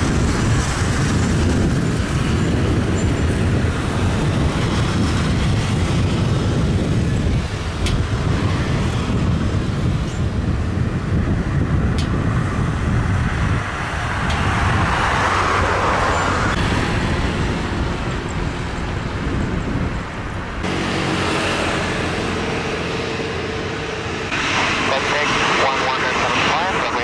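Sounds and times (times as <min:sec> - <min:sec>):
multi-tone engine hum: 0:00.0 - 0:27.0
traffic rumble: 0:00.0 - 0:27.0.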